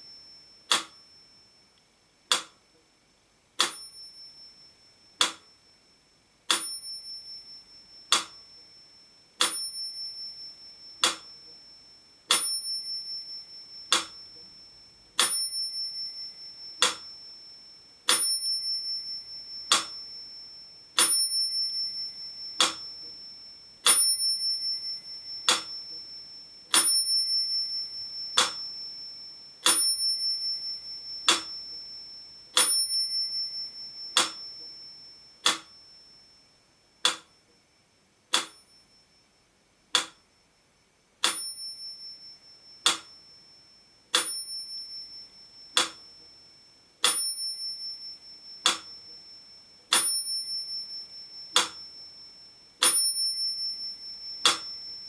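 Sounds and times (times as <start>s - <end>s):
metronome bell ringing: 0.0s - 1.8s, 3.6s - 37.6s, 38.4s - 39.4s, 41.2s - 55.0s
metronome ticking: 0.7s - 1.1s, 2.3s - 2.6s, 3.6s - 4.3s, 5.0s - 5.6s, 6.5s - 8.7s, 9.4s - 11.7s, 12.3s - 14.6s, 15.2s - 17.3s, 18.1s - 20.4s, 21.0s - 36.0s, 37.0s - 37.6s, 38.3s - 38.8s, 39.9s - 40.3s, 41.2s - 43.2s, 44.1s - 46.4s, 47.0s - 49.3s, 49.9s - 55.0s.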